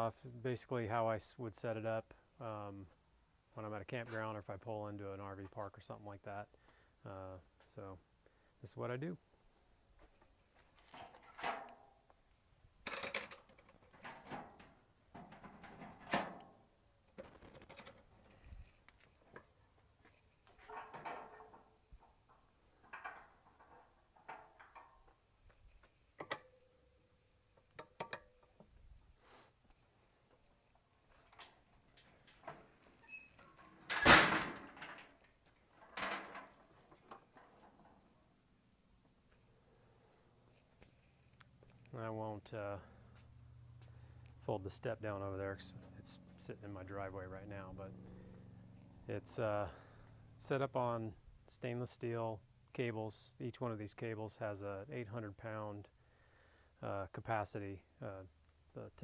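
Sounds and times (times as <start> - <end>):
metal ramp panels rattling: 20.6 - 25.1, 33.5 - 35.2.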